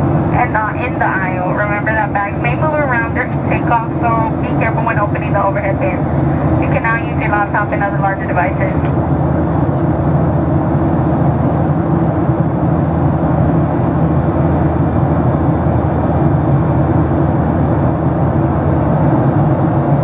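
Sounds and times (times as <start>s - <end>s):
airplane cabin drone: 0.0s - 20.0s.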